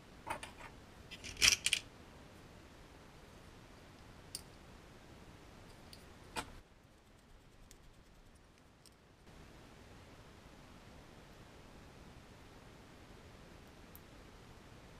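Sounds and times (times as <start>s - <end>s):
small metal parts clicking: 1.1s - 1.8s.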